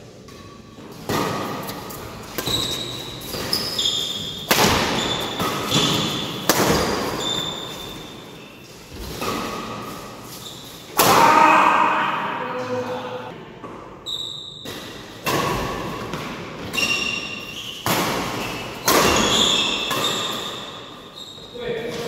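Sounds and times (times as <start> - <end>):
court shoes squeaking: 0.2 - 11.0, 13.7 - 22.0
rackets hitting shuttlecock: 4.4 - 7.6, 14.6 - 20.7.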